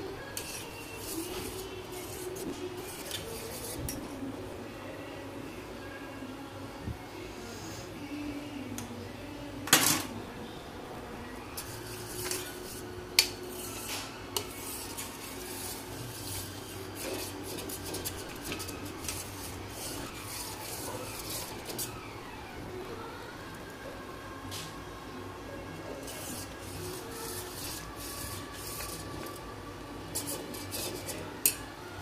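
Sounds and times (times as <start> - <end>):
spoon scraping a steel pot: 0.4 - 4.1, 11.6 - 12.9, 13.5 - 21.9, 26.0 - 29.4, 30.1 - 31.6.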